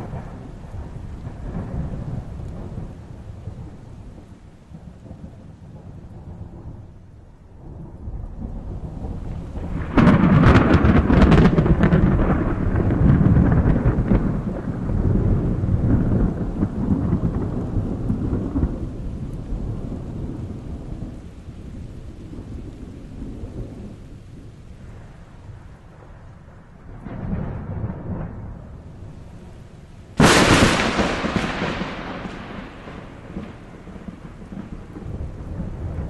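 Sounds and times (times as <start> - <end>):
thunder rumble: 0.0 - 36.0
thunder crack: 7.7 - 18.9, 30.2 - 36.0.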